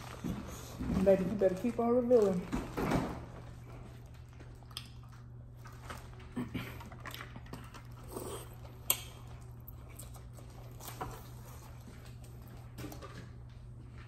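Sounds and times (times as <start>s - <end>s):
plastic bag rustling: 0.0s - 8.8s.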